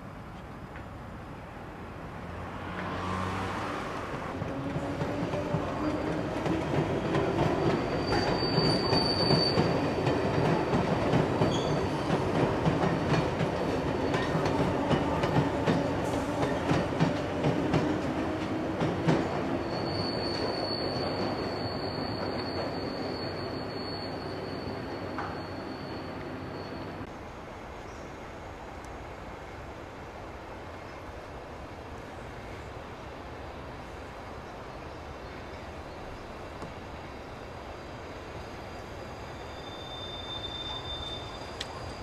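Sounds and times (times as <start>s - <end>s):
underground train rumbling on rails: 0.0s - 42.0s
high wheel squeal: 7.3s - 10.0s, 11.4s - 12.1s, 19.4s - 27.1s, 38.4s - 42.0s.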